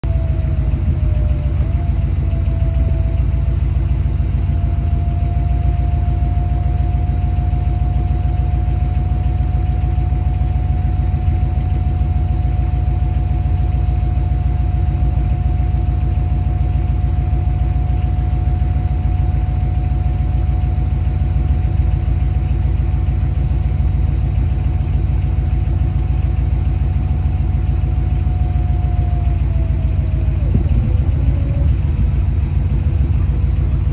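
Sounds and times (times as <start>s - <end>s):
car engine idling: 0.0s - 33.9s
electric motor whine: 28.5s - 33.9s.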